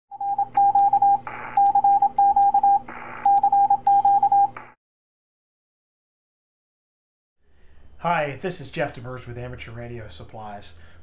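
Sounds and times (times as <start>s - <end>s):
morse code beeps: 0.1s - 4.6s.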